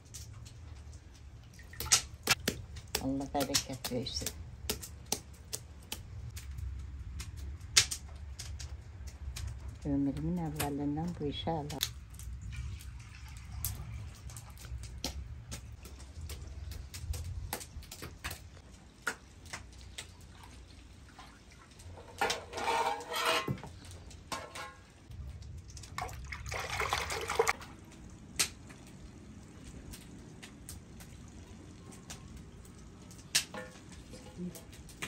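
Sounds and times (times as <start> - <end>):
liquid splashing: 0.4 - 5.8, 25.5 - 35.0.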